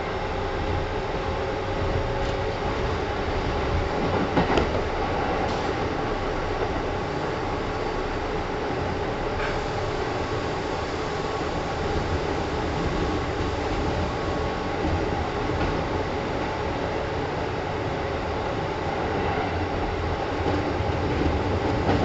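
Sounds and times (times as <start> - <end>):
train wheels rumbling: 0.0 - 22.0
train clatter: 0.7 - 6.0, 11.4 - 16.0, 19.1 - 22.0.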